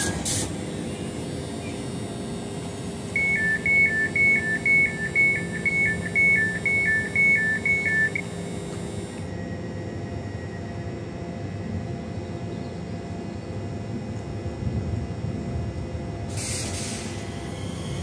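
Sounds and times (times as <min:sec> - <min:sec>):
train steady hum: 0:00.0 - 0:18.0
high two-tone door warning beep: 0:03.1 - 0:08.3.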